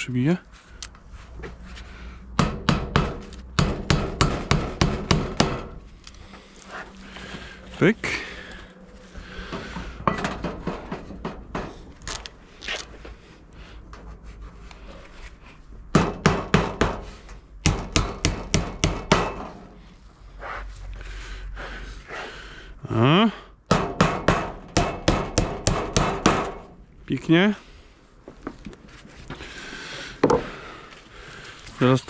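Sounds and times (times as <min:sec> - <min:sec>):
hammer driving nails into wood: 0:02.4 - 0:05.8, 0:15.9 - 0:19.5, 0:23.7 - 0:26.7.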